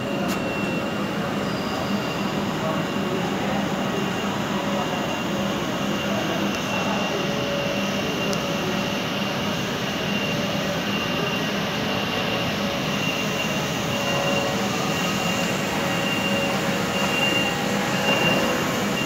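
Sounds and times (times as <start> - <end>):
high steady whine: 0.0 - 19.0
printing machinery running: 0.0 - 19.0.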